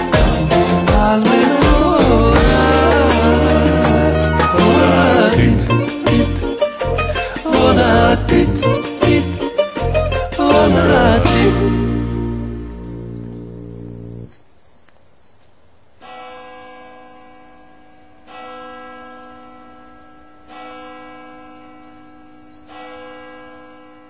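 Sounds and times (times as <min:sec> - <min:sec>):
music: 0:00.0 - 0:14.3.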